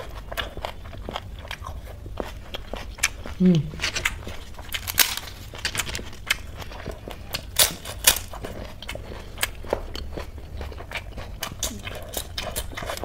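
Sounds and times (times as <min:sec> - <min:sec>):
crisp papad crunching: 0:01.8 - 0:09.8.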